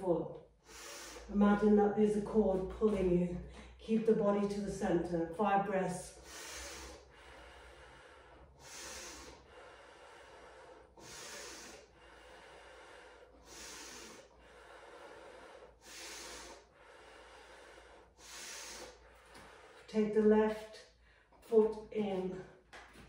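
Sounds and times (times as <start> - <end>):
woman breathing deeply: 0.6 - 1.4, 6.1 - 19.9.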